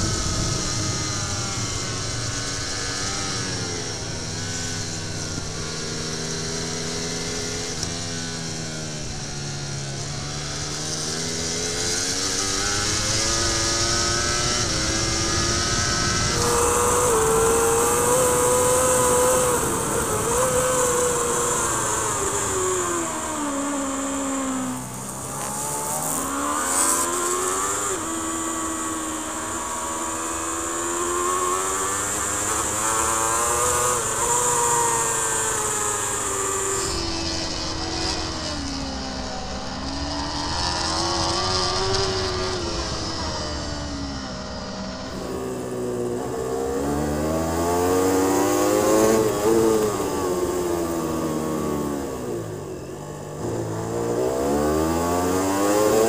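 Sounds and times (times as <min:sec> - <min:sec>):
motorcycle engine at speed: 0:00.0 - 0:56.0
wind rush: 0:14.2 - 0:25.3.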